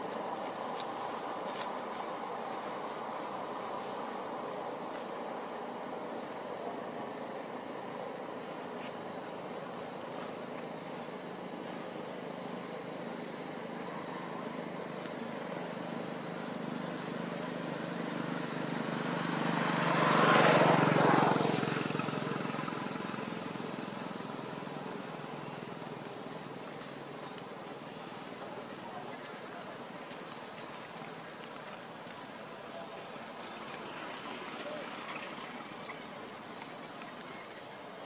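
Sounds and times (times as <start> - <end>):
crickets droning: 0.0 - 38.0
vehicle passing: 16.2 - 26.6, 33.1 - 37.3.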